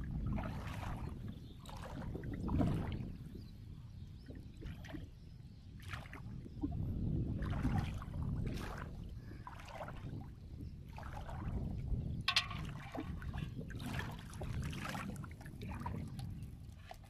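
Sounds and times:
water sloshing and splashing: 0.0 - 3.6, 4.2 - 17.0
water dripping: 12.3 - 13.1.

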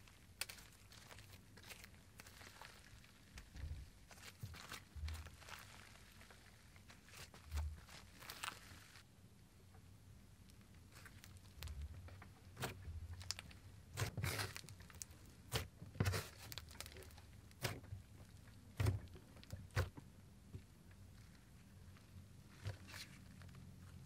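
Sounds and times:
hands squishing slime: 0.0 - 9.0, 10.5 - 20.0, 20.6 - 24.0.

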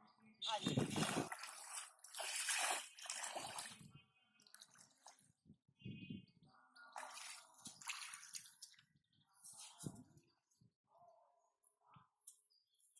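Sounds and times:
feet wading through muddy water: 0.5 - 5.4, 6.9 - 9.0.

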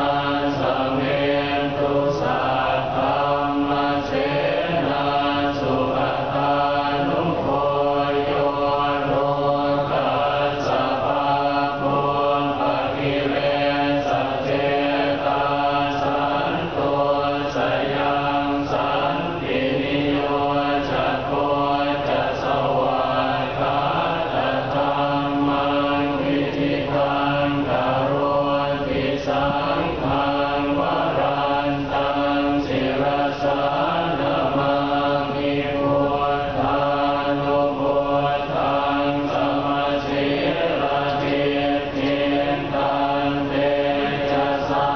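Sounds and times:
group chanting prayers in unison: 0.0 - 44.9.

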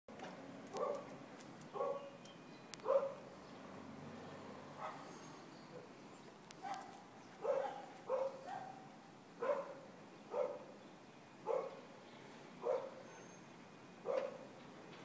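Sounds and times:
dog barking: 0.7 - 1.1, 1.8 - 2.1, 2.8 - 3.2, 4.8 - 5.1, 6.6 - 10.7, 11.5 - 11.8, 12.6 - 13.0, 14.0 - 14.5.

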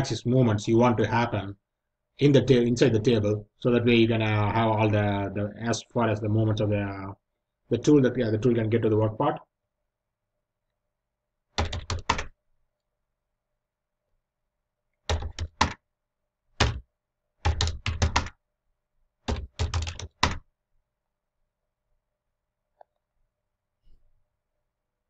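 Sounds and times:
computer keyboard typing: 11.6 - 12.3, 15.0 - 15.8, 16.6 - 16.8, 17.4 - 18.4, 19.3 - 20.4.

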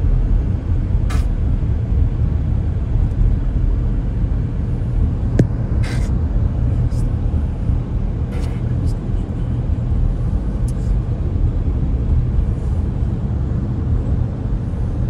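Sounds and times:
street noise: 0.0 - 15.0
sharp click: 1.1 - 1.3.

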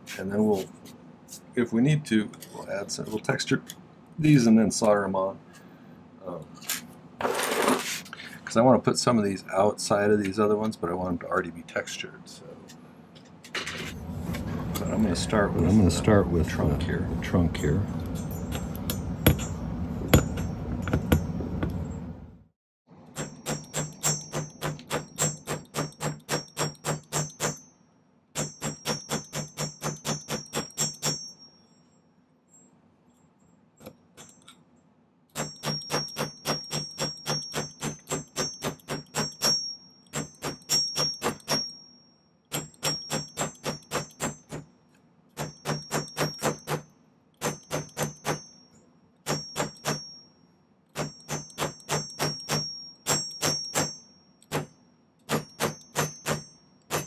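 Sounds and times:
hammer tapping metal wire: 18.1 - 21.8, 23.2 - 27.7, 28.4 - 31.5, 35.4 - 41.9, 42.5 - 44.7, 45.4 - 50.2, 51.0 - 57.0.

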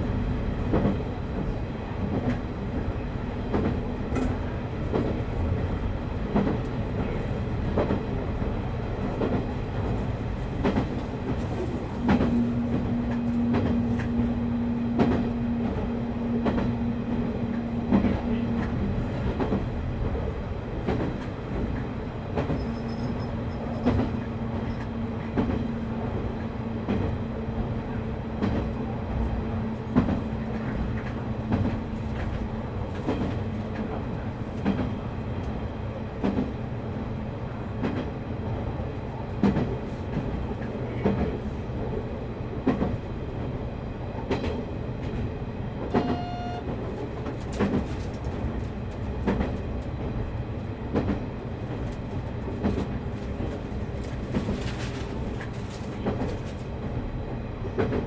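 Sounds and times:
train wheels rumbling on rails: 0.0 - 58.0
clacks over rail joints: 10.6 - 14.3, 14.9 - 20.2, 20.8 - 27.2, 29.8 - 35.0, 39.4 - 41.4, 44.2 - 50.2, 50.9 - 57.0.

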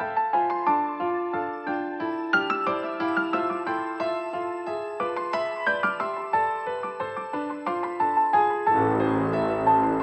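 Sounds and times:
gentle piano tune: 0.0 - 10.0.

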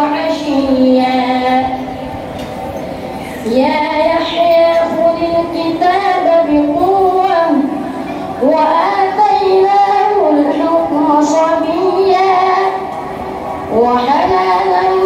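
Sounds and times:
child reciting melodically: 8.4 - 12.8.

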